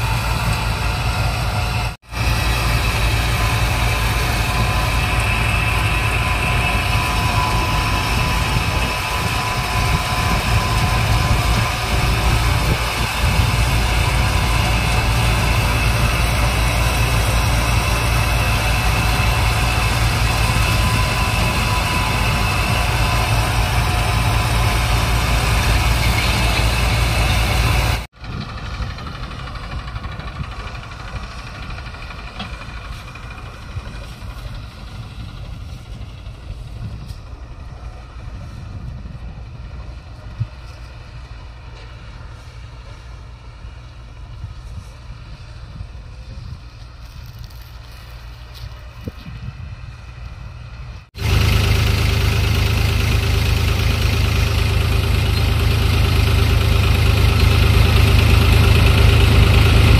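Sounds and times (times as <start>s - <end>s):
low engine rumble: 0.0s - 59.9s
threshing machine running: 0.0s - 59.9s
wind on microphone: 4.4s - 17.3s, 44.4s - 51.0s.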